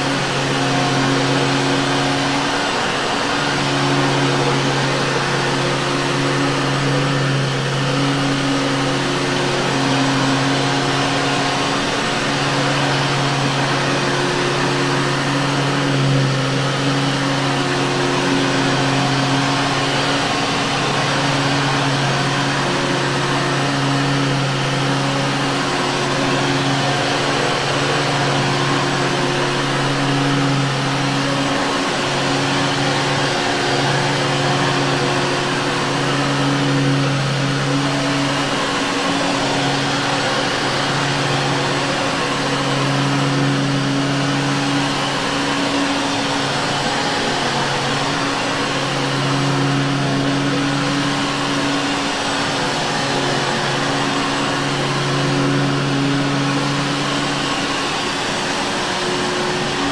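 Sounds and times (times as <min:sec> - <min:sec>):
vacuum cleaner running on carpet: 0:00.0 - 0:59.9.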